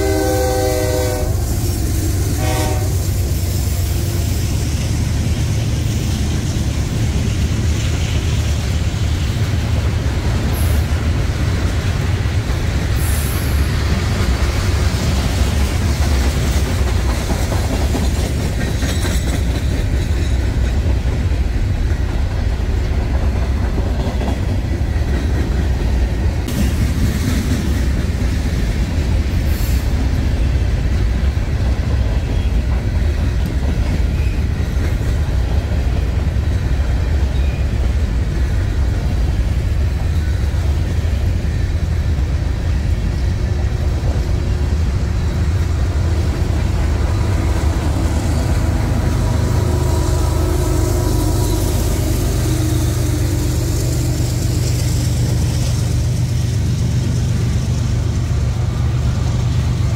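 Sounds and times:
locomotive horn chord: 0.0s - 1.4s, 2.3s - 3.2s, 48.6s - 53.7s
train rumble: 0.0s - 59.9s
wheels clattering on rails: 4.4s - 49.8s.

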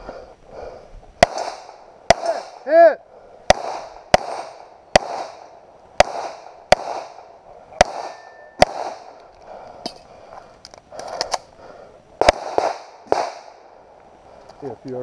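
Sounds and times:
pistol shots with echo: 1.2s - 2.8s, 3.5s - 9.2s, 12.2s - 13.8s
sharp gunshot cracks: 1.2s - 2.8s, 3.5s - 9.2s, 12.2s - 13.7s.

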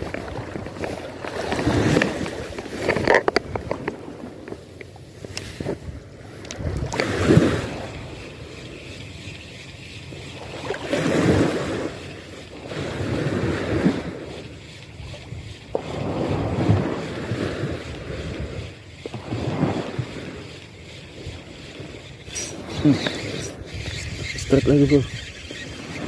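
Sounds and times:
small waves washing: 0.0s - 26.0s
wind buffeting microphone: 5.2s - 12.1s, 12.7s - 26.0s.

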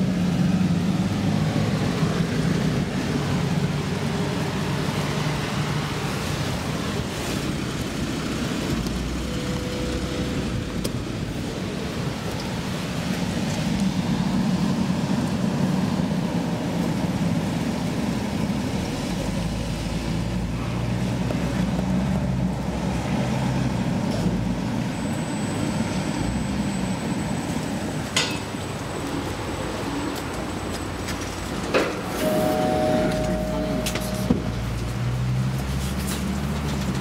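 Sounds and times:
elevator low rumble: 32.0s - 35.0s
elevator stopping click: 32.1s - 34.7s
thin high whine: 32.1s - 34.7s.

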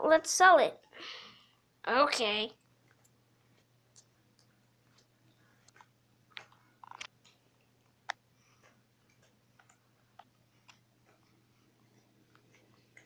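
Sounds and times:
faint low hum: 0.0s - 13.0s
faint handling clicks and taps: 2.6s - 13.0s.

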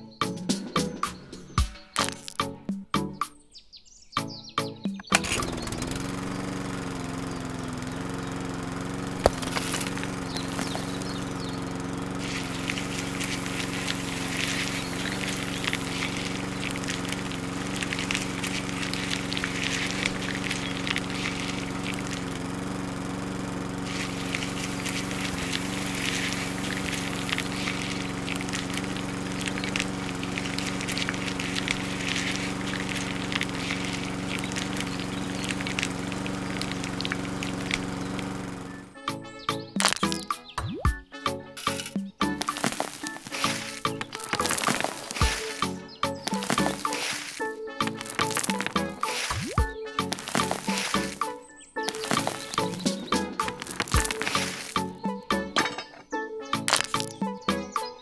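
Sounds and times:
small electric motor hum: 5.1s - 40.3s, 41.6s - 55.4s, 56.7s - 57.5s
rough crackling noise: 9.1s - 23.1s, 23.8s - 38.8s, 39.8s - 40.3s, 41.6s - 55.1s, 56.7s - 57.2s.

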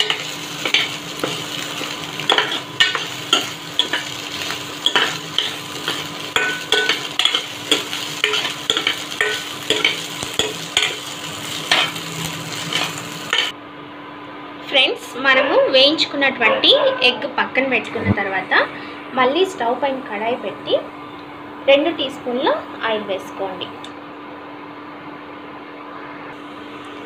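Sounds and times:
eggs sizzling in a pan: 0.0s - 13.5s.

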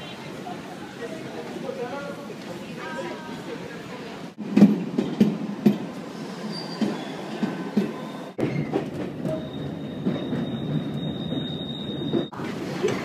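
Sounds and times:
running noise aboard moving train: 0.0s - 13.0s
train wheels clacking over rail joints: 4.5s - 6.0s, 6.8s - 13.0s.

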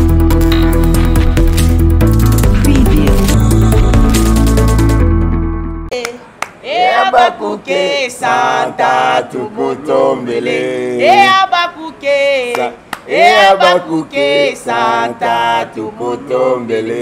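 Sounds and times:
people singing unaccompanied: 6.6s - 17.0s.

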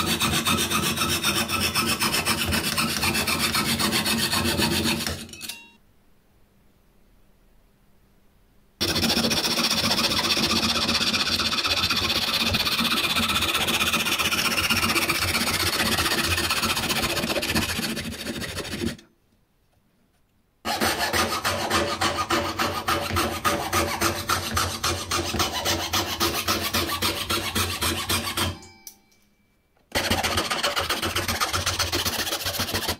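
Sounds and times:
saw cutting through plywood: 0.0s - 5.3s, 8.8s - 19.0s, 20.7s - 28.6s, 29.9s - 32.9s
hand saw rasping: 0.0s - 5.4s, 8.8s - 19.0s, 20.7s - 28.6s, 29.9s - 32.9s.

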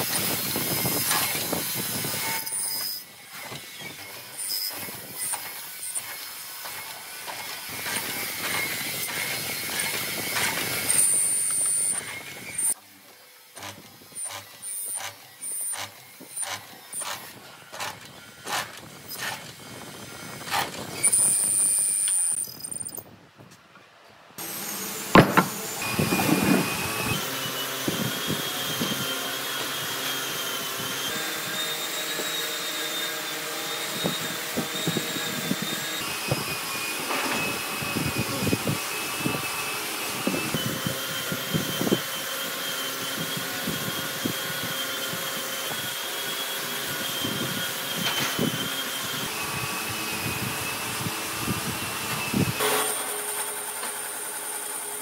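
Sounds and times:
motor whirring with whine: 24.4s - 54.9s
wood and steel rule knocks: 25.2s - 25.6s.

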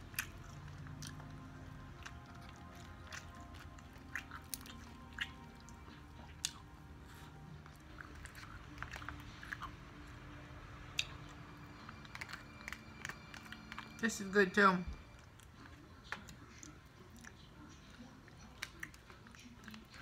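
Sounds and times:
person chewing crunchy food: 0.0s - 14.0s.

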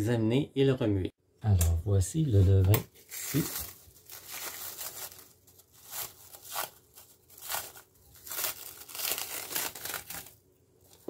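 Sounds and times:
cling film crinkling: 3.0s - 11.0s.

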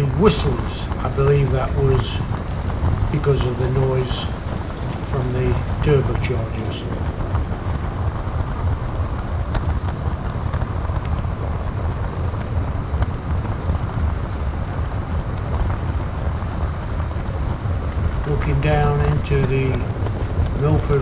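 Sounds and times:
model train rumbling on track: 0.0s - 11.9s, 16.5s - 21.0s.

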